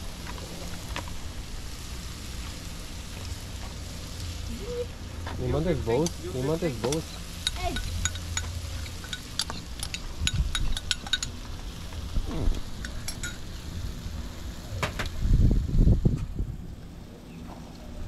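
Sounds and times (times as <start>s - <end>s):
low rumbling: 0.0s - 18.0s
spoon clinking against a cup: 6.9s - 11.3s, 12.8s - 13.4s.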